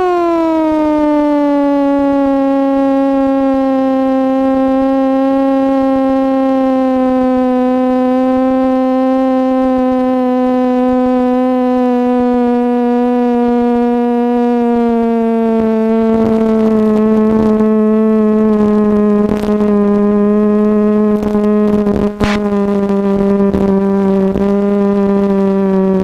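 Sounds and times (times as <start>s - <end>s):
airplane engine and propeller droning: 0.0s - 26.0s.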